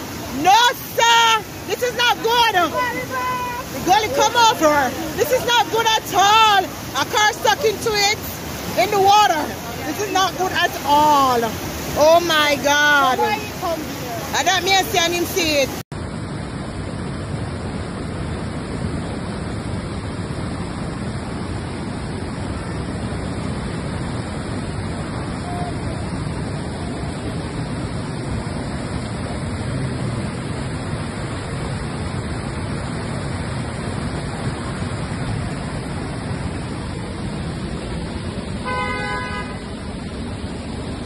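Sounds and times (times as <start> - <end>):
floodwater rushing across road: 0.0 - 41.0.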